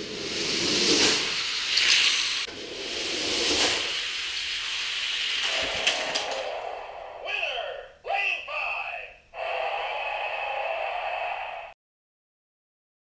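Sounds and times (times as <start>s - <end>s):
toy cars rolling down plastic track: 5.3s - 6.5s.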